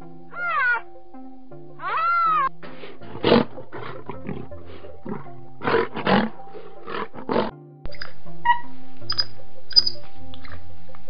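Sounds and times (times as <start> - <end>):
background music: 0.0 - 11.0
rhinoceros calling: 0.3 - 1.0, 1.8 - 7.5.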